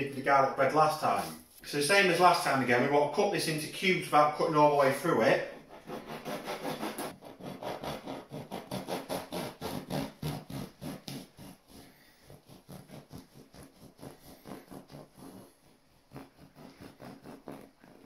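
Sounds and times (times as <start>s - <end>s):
knife sawing through crusty bread: 5.4s - 18.0s.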